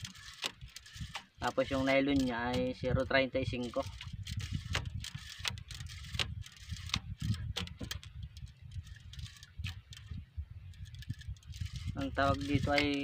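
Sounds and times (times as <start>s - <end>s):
steady low rumble: 0.0s - 13.0s
fishing line clicks and taps: 3.6s - 10.2s.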